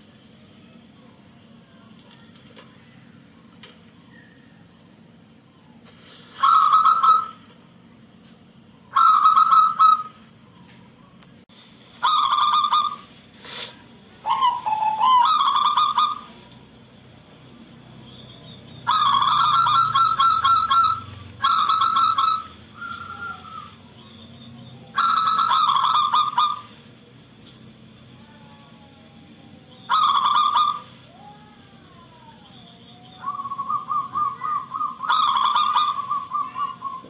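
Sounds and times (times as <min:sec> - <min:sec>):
dove cooing: 0:06.3 - 0:07.5, 0:08.9 - 0:10.4, 0:12.0 - 0:16.5, 0:18.8 - 0:26.9, 0:28.2 - 0:37.0.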